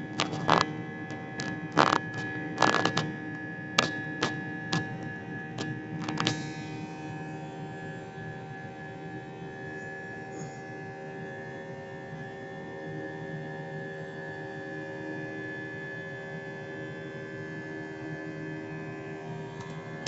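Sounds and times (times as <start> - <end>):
steady whining tones: 0.0 - 7.5.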